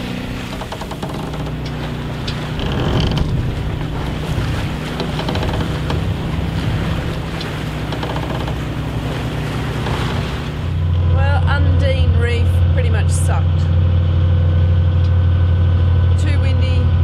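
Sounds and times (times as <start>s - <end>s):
low generator hum: 0.0s - 17.0s
water rushing along hull: 0.0s - 17.0s
wind on microphone: 2.6s - 8.0s.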